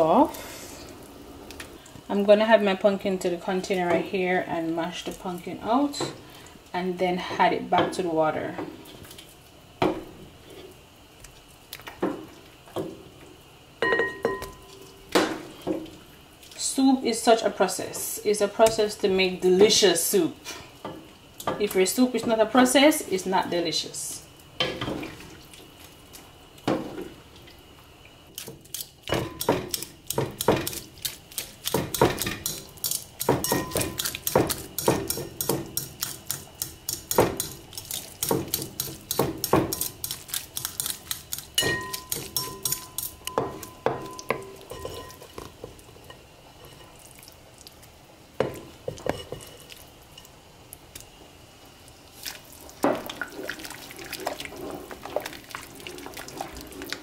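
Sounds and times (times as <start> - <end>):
fork mashing in glass bowl: 29.2 - 45.4.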